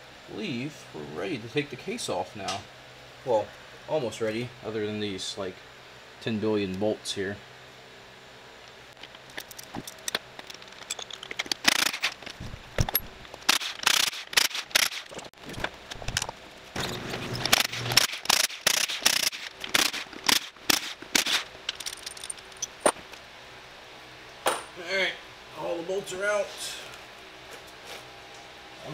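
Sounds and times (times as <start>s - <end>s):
metal tools clicking and rattling: 9.0s - 23.0s.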